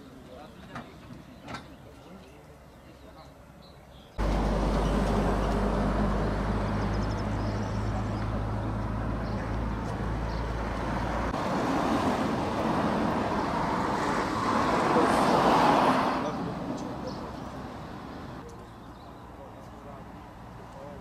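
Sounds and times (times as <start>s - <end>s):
vehicles passing: 0.0s - 21.0s
low engine hum: 4.2s - 14.3s.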